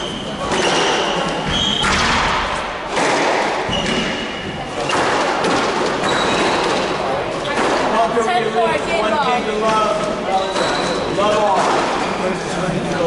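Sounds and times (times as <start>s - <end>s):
shoes thudding and squeaking on wood: 0.0s - 2.1s, 3.6s - 4.6s.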